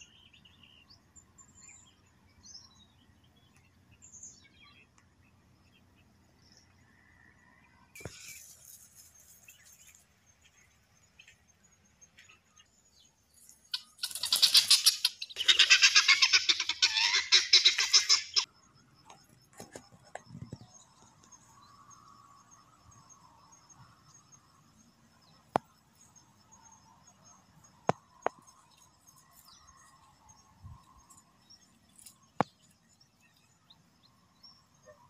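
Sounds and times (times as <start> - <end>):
guinea fowl rattling calls: 13.7 - 18.5.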